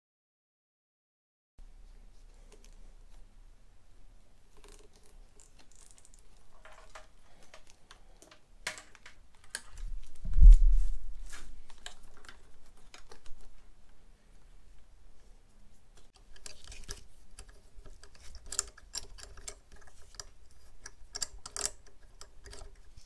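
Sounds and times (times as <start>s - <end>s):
small clicks taps and rustles: 4.5s - 10.2s, 11.7s - 14.0s, 16.0s - 23.0s.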